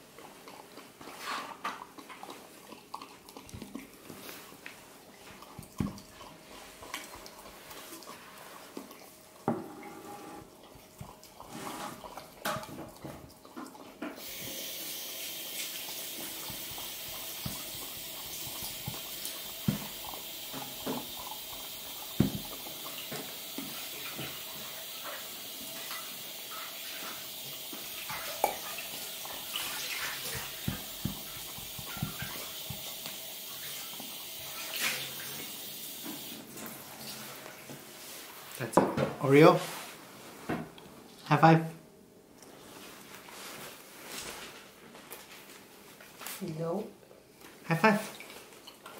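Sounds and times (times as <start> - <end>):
puppy licking: 0.1 - 9.4, 10.5 - 14.5, 15.5 - 35.4.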